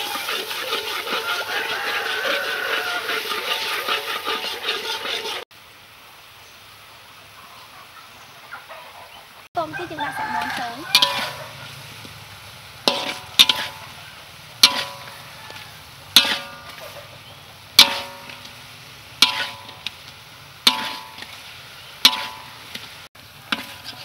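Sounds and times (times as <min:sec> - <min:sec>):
faint sizzling: 0:00.0 - 0:24.0
metal spoon clinking on wok: 0:10.9 - 0:11.4, 0:22.1 - 0:22.6.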